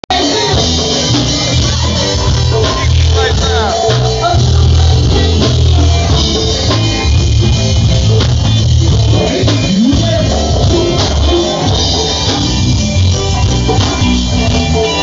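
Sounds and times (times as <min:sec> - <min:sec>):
bass guitar: 0:00.0 - 0:15.0
live band playing: 0:00.0 - 0:15.0
people talking: 0:00.1 - 0:06.3.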